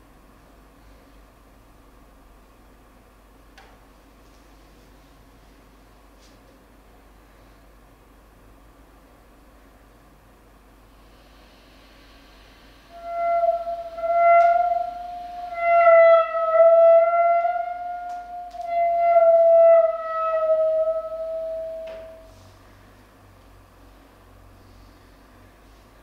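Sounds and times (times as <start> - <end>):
clarinet holding long note: 12.9 - 22.5.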